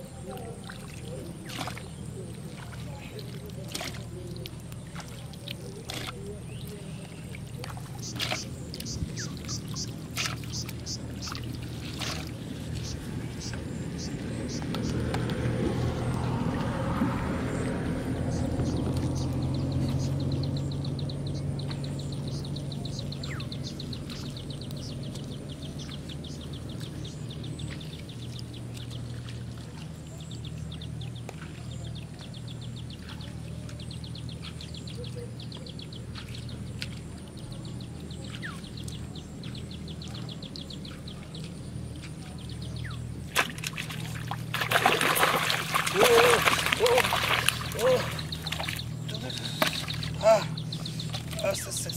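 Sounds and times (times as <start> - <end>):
fish splashing in water: 0.0 - 35.3, 38.2 - 51.9
canal-side ambience: 0.0 - 51.9
low motor hum: 0.0 - 51.9.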